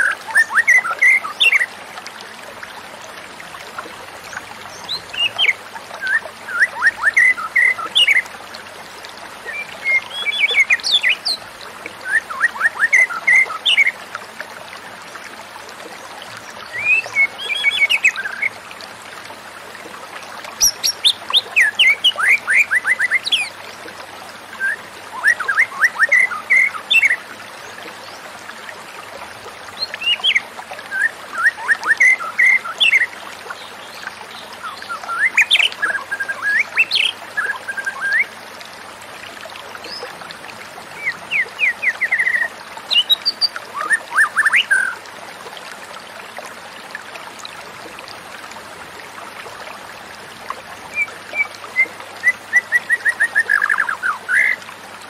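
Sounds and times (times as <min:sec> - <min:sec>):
bird singing chirps and trills: 0:04.3 - 0:08.3, 0:09.4 - 0:11.4, 0:16.6 - 0:18.5, 0:29.8 - 0:38.3, 0:41.0 - 0:45.0.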